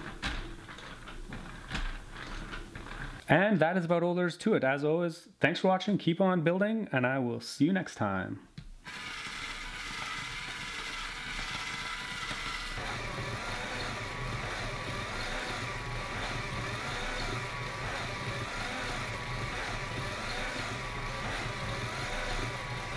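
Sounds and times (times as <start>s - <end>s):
electric motor whirring: 8.8s - 22.9s
rising and falling whine: 9.2s - 22.9s.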